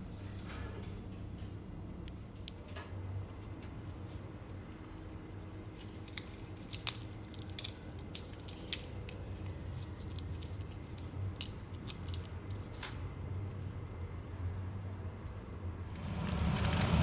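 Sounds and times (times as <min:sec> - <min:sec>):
low steady hum: 0:00.0 - 0:17.0
leaves crackling being knotted: 0:03.4 - 0:13.0, 0:15.9 - 0:17.0.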